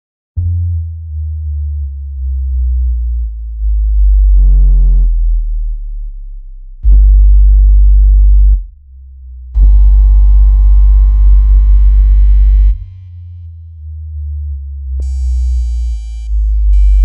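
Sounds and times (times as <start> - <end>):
deep bass sine tones: 0.4 - 17.0
loud buzzy tone: 4.3 - 5.2, 6.8 - 8.7, 9.6 - 13.0
buzzy higher tone: 9.6 - 12.9.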